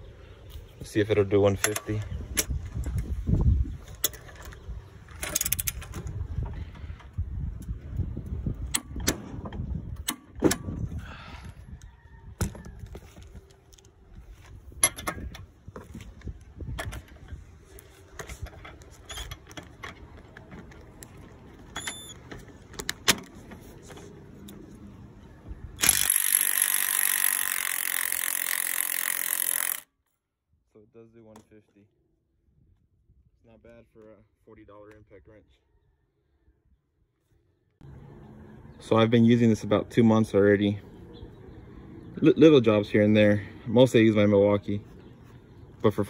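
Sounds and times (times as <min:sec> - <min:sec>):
hand tools clicking and clanking: 0:03.8 - 0:06.2, 0:14.7 - 0:24.6, 0:25.8 - 0:29.9
impact wrench hammering: 0:25.8 - 0:29.8.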